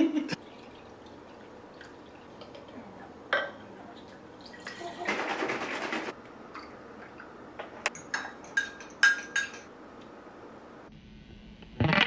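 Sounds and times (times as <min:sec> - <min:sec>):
spoon clinking against glass mug: 0:07.9 - 0:09.7.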